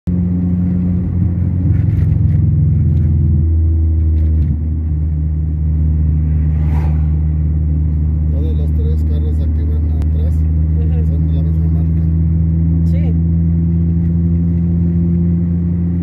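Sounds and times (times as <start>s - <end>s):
car engine and road noise: 0.0s - 16.0s
passing car whoosh: 5.4s - 8.3s.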